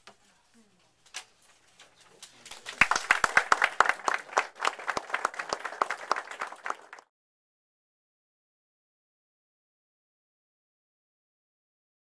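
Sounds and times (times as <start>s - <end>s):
audience applauding: 2.5s - 7.1s.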